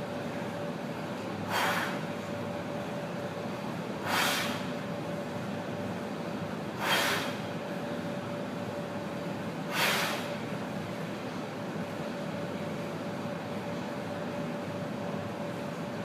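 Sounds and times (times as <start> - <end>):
steady background hum: 0.0 - 16.0
man's sharp breaths: 1.5 - 2.0, 4.0 - 4.7, 6.8 - 7.4, 9.7 - 10.3.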